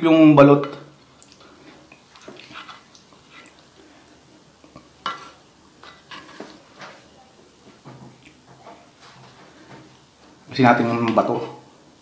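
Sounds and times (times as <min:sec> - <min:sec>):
wooden spoon scraping metal plate: 0:05.0 - 0:07.0.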